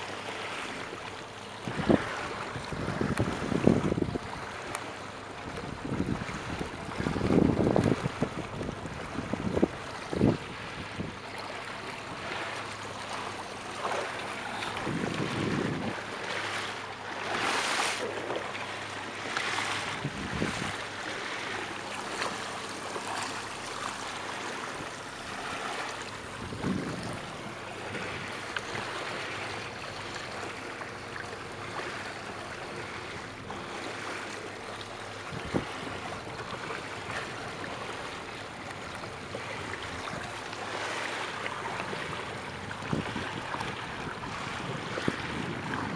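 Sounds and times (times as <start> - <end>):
water lapping against boat hull: 0.0 - 45.9
wind buffeting microphone: 1.6 - 16.7, 19.3 - 21.6, 24.4 - 32.0, 35.0 - 45.9.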